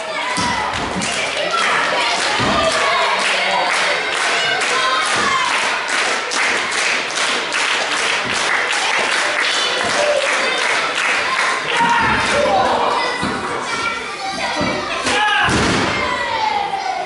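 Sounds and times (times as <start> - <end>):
crowd clapping: 0.8 - 12.8.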